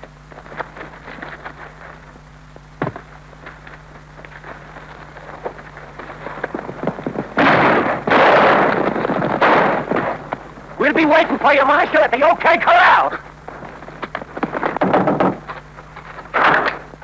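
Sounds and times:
low projector hum: 0.0 - 17.0
sharp crack: 7.3 - 10.5
loud gunshots: 7.4 - 8.8.

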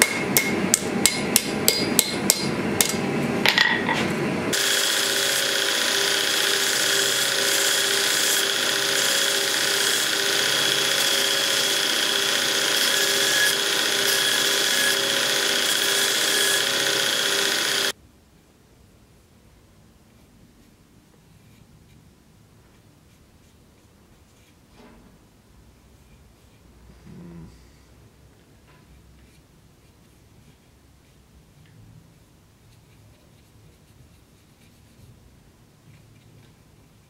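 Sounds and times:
hammer striking metal on anvil: 0.0 - 3.9
belt grinder grinding metal: 4.5 - 18.0.

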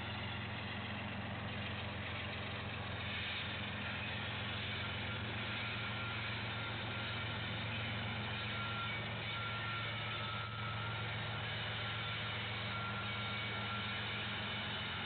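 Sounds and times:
diesel locomotive engine running: 0.0 - 15.0.

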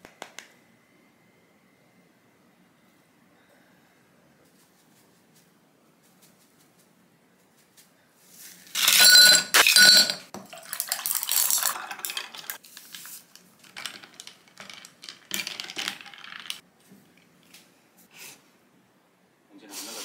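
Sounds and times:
ice cubes clinking into glass: 8.8 - 12.6, 13.7 - 16.6
water pouring over ice: 10.4 - 13.0.

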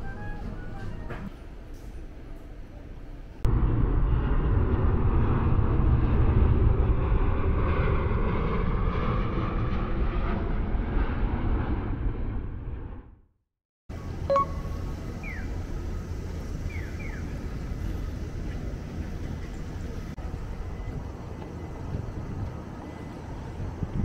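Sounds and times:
vehicle engine rumbling: 13.9 - 24.0.

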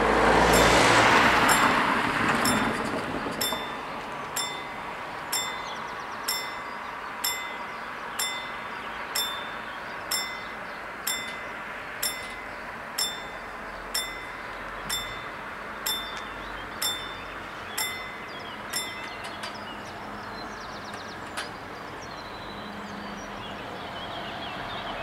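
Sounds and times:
level-crossing warning bell: 0.0 - 20.0
passing car: 0.0 - 25.0.

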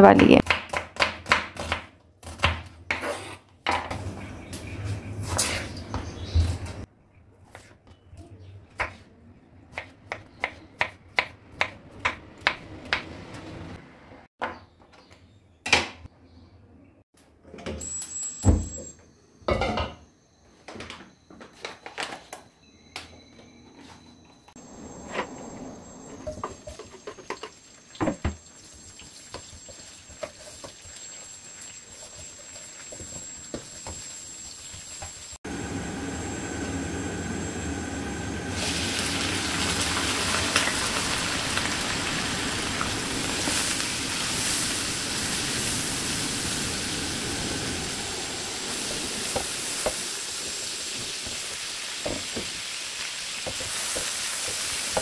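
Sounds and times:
onions sizzling in oil: 26.2 - 55.0.

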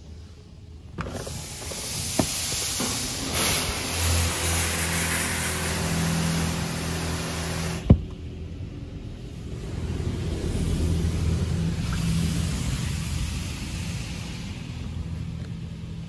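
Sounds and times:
low machinery hum: 0.0 - 16.0
water and foam spraying hiss: 1.1 - 7.9, 9.3 - 15.4.

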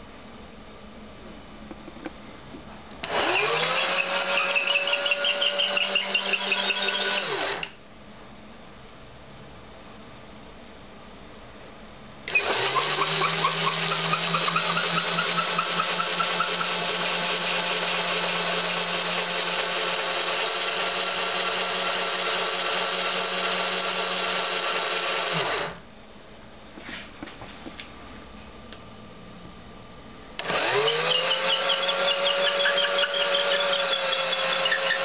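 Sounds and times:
cordless drill motor spinning: 3.0 - 7.8, 12.3 - 25.8, 30.4 - 35.0.

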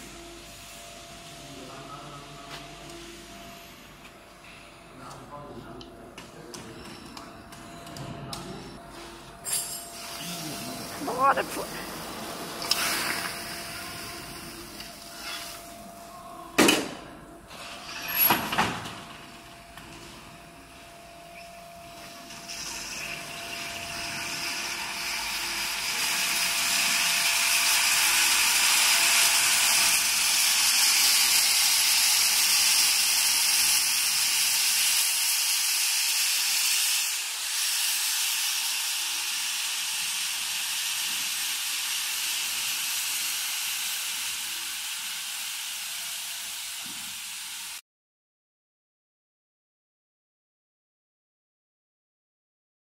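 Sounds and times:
baking machine hissing: 8.9 - 47.8.

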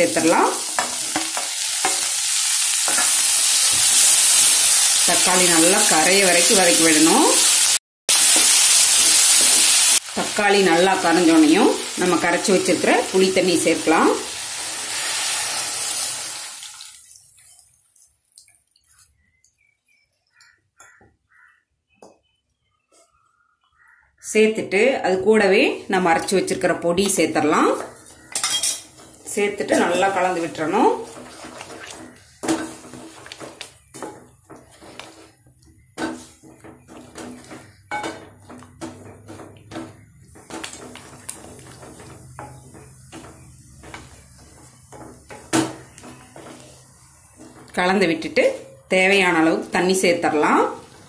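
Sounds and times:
wooden spatula scraping pot: 26.0 - 51.0.

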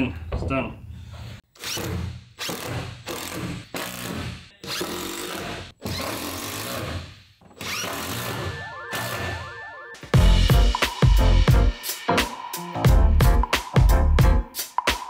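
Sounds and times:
power drill driving screws: 1.2 - 9.3.

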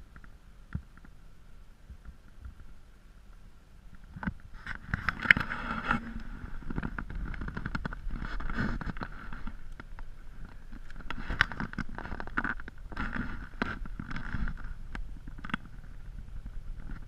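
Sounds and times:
knocks and scrapes: 4.0 - 17.0.

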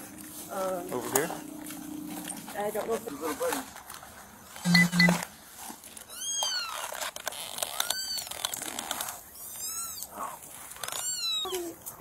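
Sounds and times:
short electronic beeps: 4.6 - 5.2.

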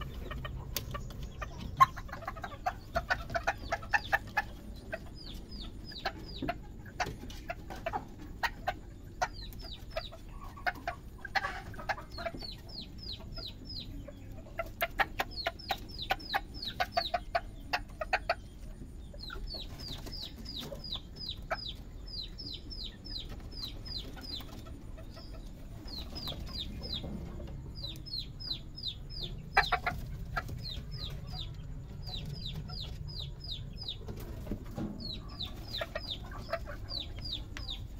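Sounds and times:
chickens chirping: 0.0 - 37.9
chickens clucking: 0.0 - 37.9.

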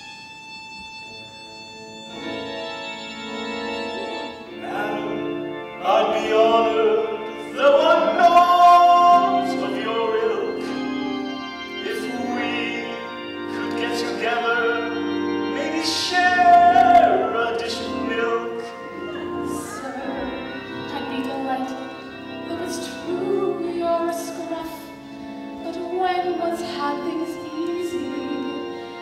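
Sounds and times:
woman singing with accompaniment: 25.6 - 28.7.

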